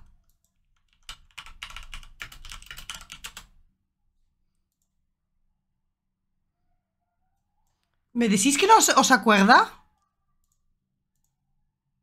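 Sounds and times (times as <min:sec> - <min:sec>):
fast typing on keyboard: 0:00.0 - 0:03.6.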